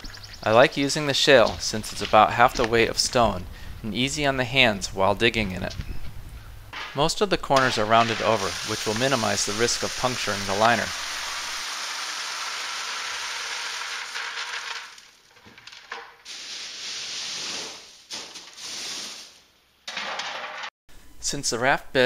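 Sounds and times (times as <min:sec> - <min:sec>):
stones spread by hand: 0:07.6 - 0:19.4
stones pouring from a bucket: 0:07.6 - 0:20.2.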